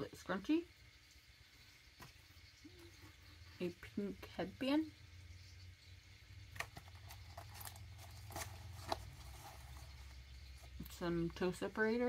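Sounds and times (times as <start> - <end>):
packaging rustling: 6.6 - 10.8.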